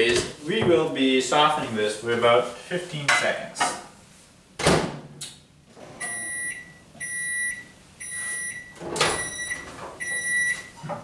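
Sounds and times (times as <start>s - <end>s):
microwave oven beeping: 5.8s - 10.9s.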